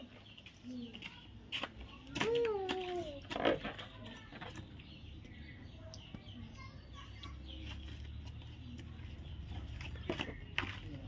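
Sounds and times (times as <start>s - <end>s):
bird chirps: 3.9s - 11.0s.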